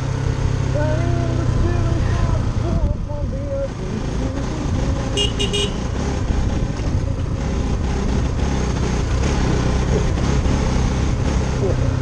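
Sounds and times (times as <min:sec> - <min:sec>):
motorcycle engine running: 0:00.0 - 0:12.0
wind rumbling on microphone: 0:01.0 - 0:05.2.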